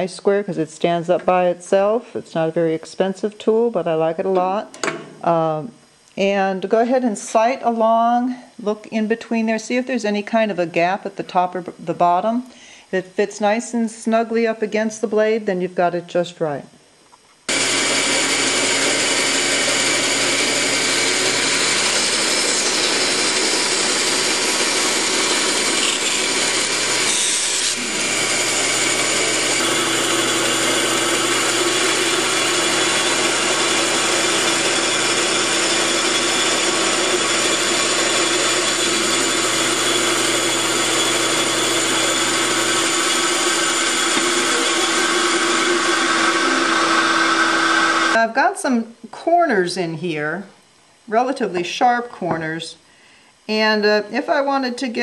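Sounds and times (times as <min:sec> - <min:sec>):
band saw cutting wood: 0:17.5 - 0:48.2
motor hum: 0:17.5 - 0:48.2.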